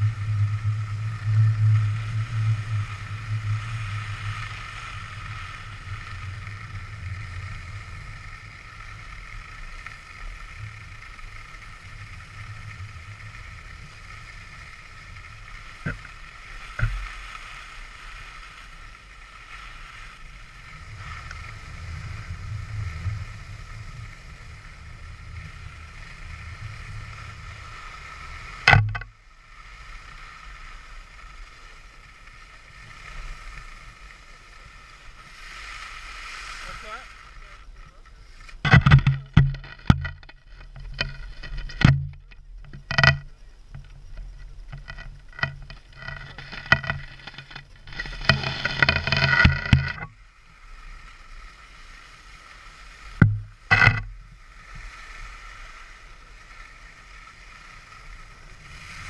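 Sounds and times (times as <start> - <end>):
skis scraping on snow: 0.0 - 42.2, 42.8 - 59.0
wind rumble on microphone: 0.0 - 59.0
sharp knocks: 53.2 - 54.0.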